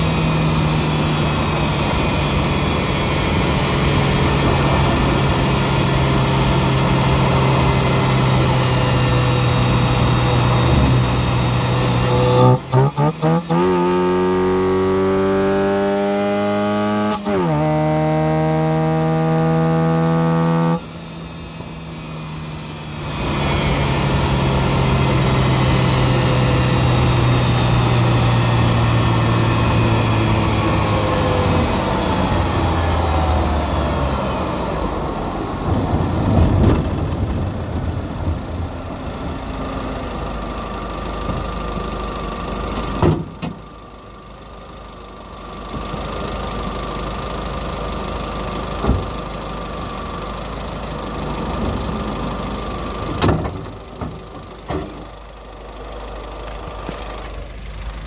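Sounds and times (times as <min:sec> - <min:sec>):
engine intake idling: 0:37.6 - 0:58.0.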